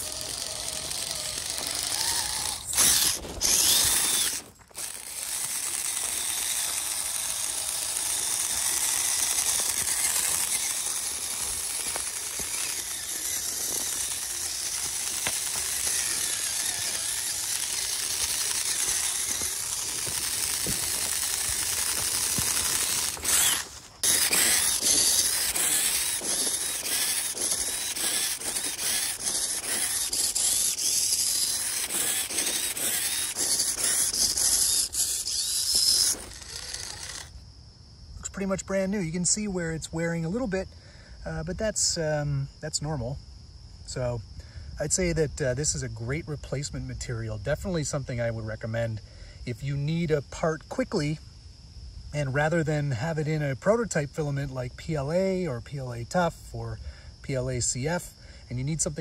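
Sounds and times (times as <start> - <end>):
toy truck motor whirring: 0.0 - 37.4.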